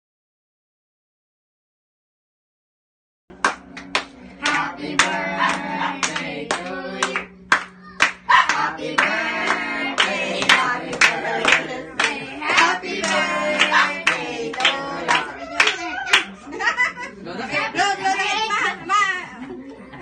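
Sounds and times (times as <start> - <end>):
people clapping: 3.3 - 16.4
group singing: 4.3 - 16.3.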